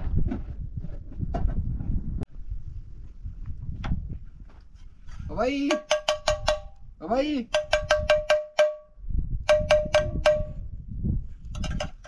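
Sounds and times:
spoon tapping metal plate: 5.7s - 6.8s, 7.5s - 8.9s, 9.5s - 10.6s.

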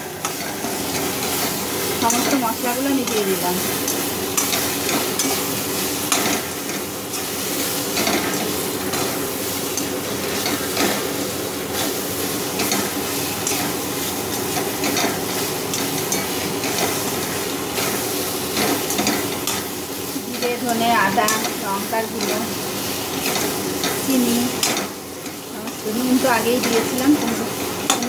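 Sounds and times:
food sizzling in hot oil: 0.0s - 28.0s.

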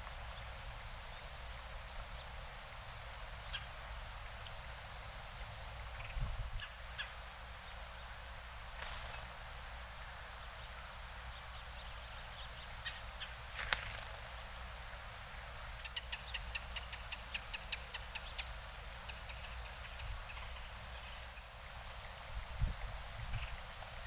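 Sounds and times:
songbirds chip calls: 0.0s - 14.8s, 15.7s - 22.3s, 23.2s - 24.0s
faint low outdoor rumble: 0.0s - 24.0s.

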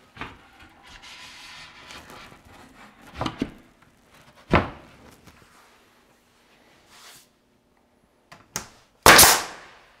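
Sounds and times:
wood panel scraping rustle: 0.2s - 4.5s.

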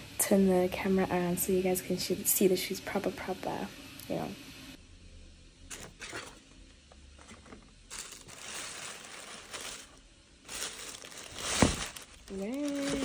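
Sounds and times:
tissue paper rustling: 7.9s - 13.0s.

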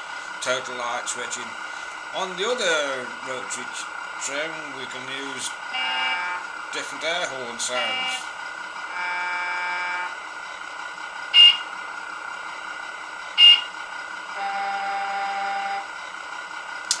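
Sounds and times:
truck engine idling through speaker: 0.0s - 17.0s
air horn: 5.7s - 6.4s, 7.7s - 8.3s, 8.9s - 10.2s, 11.4s - 11.6s, 14.4s - 15.8s.

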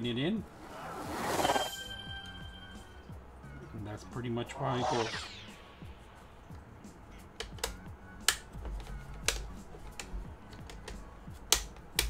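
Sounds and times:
laptop parts clicking: 7.4s - 12.0s.

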